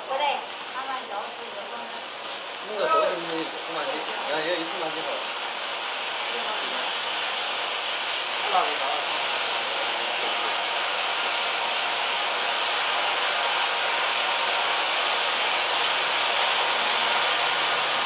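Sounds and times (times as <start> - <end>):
firework fountain hissing: 0.0 - 18.0.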